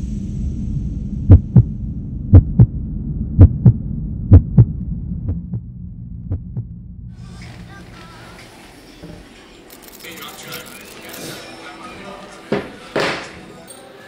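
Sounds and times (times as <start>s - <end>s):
low steady hum: 0.0s - 8.6s
heartbeat thumps: 1.2s - 7.1s.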